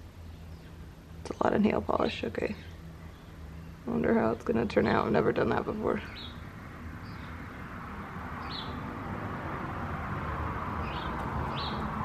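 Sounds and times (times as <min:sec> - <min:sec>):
bird chirps: 0:08.4 - 0:08.8, 0:10.8 - 0:11.9.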